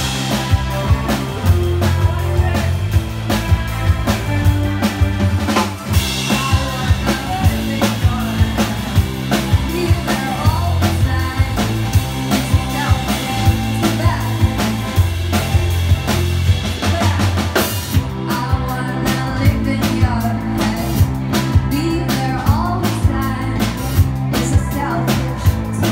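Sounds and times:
drum kit beat: 0:00.0 - 0:25.9
electric bass: 0:00.0 - 0:25.9
electric guitar: 0:00.0 - 0:25.9.

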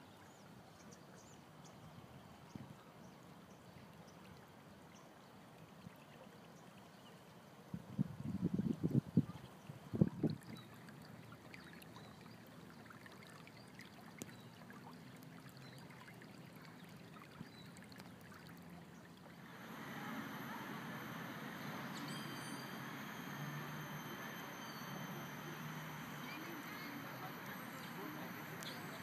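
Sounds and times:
outdoor background noise: 0:00.0 - 0:29.0
stream trickling over rocks: 0:09.5 - 0:19.8
thin high tones: 0:19.4 - 0:29.0.

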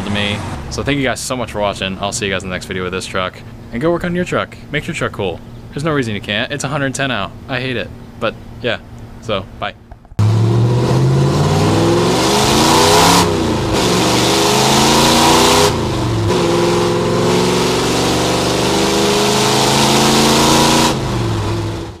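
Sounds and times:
truck engine accelerating: 0:00.0 - 0:02.8, 0:10.2 - 0:22.0.

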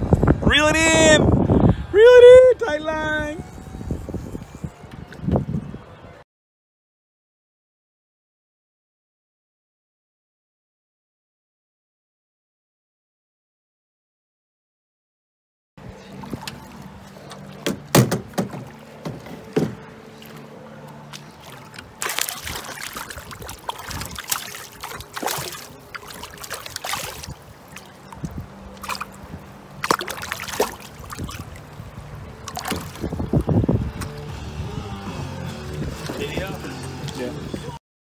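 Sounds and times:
fish splashing in water: 0:16.0 - 0:34.4
sharp knocks: 0:17.6 - 0:19.8.

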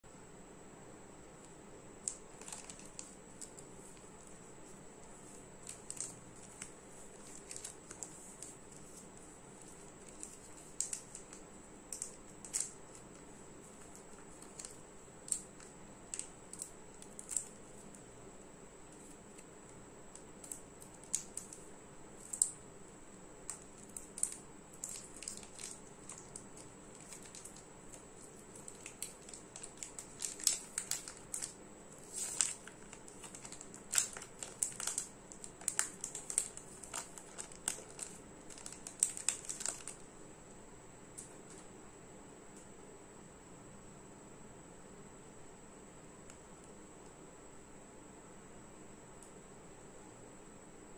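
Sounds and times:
wrapper crinkling and tearing: 0:02.0 - 0:17.9, 0:20.4 - 0:21.6, 0:23.5 - 0:40.0.

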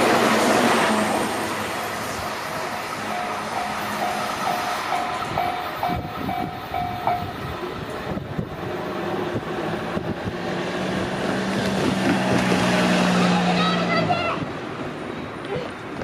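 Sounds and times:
train rumble: 0:00.0 - 0:16.0
level crossing bell dinging: 0:03.1 - 0:07.4.

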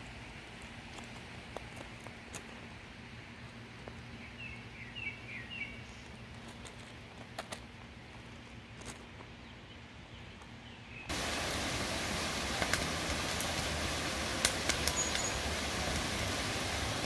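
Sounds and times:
wood fire crackling: 0:11.1 - 0:17.0.

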